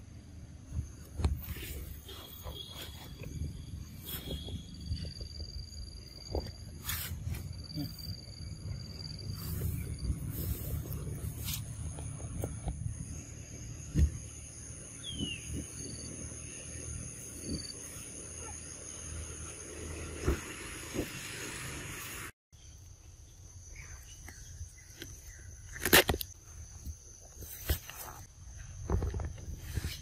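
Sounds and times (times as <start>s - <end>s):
high-pitched insect drone: 1.8s - 22.0s
knocks and thumps: 13.9s - 14.3s.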